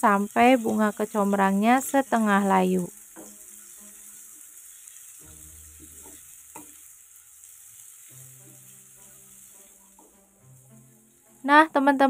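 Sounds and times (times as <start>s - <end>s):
vegetables sizzling in oil: 0.0s - 12.0s
spatula scraping pan: 3.1s - 11.4s.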